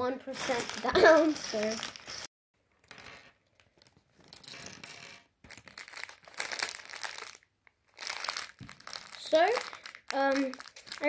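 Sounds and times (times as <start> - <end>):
plastic bag crinkling: 0.3 - 2.3, 5.5 - 11.0.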